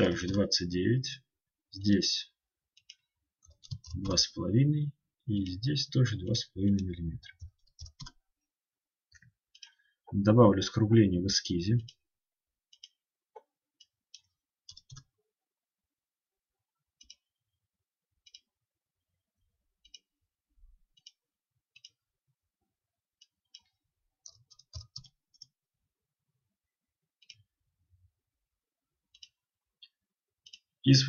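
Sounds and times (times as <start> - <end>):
computer mouse clicks: 23.2 - 25.5, 27.2 - 27.5, 29.1 - 29.4, 30.4 - 30.7.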